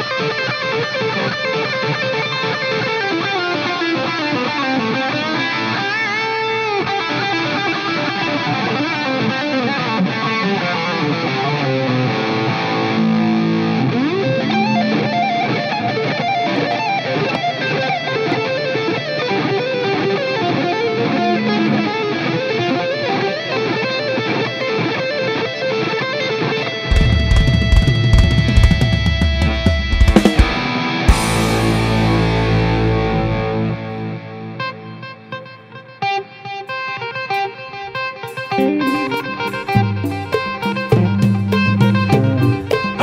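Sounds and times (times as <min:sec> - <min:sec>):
electric guitar solo: 0:00.0 - 0:43.0.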